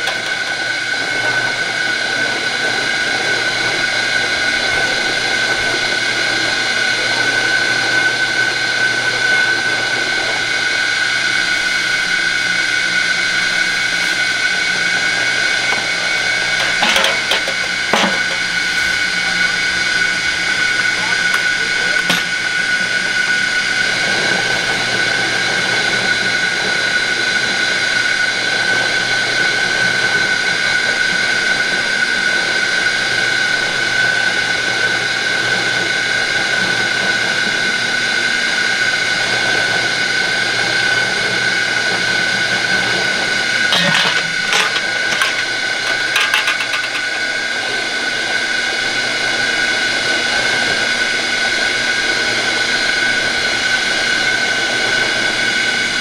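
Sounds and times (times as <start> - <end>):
juicing machine whining: 0.0 - 56.0
short clatters: 43.7 - 47.1.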